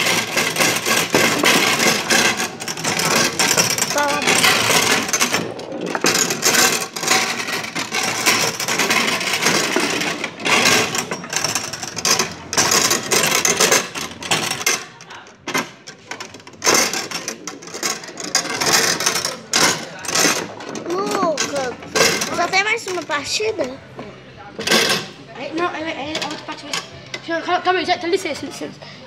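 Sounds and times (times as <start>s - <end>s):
foosball figures striking ball: 0.0s - 23.1s
foosball rods rattling: 0.0s - 27.4s.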